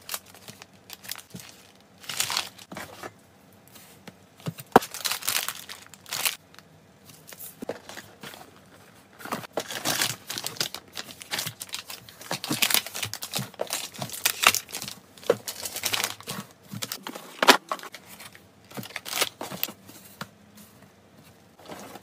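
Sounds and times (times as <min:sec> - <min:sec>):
plastic packaging crinkling: 0:00.0 - 0:02.7, 0:04.6 - 0:06.6, 0:07.2 - 0:19.8.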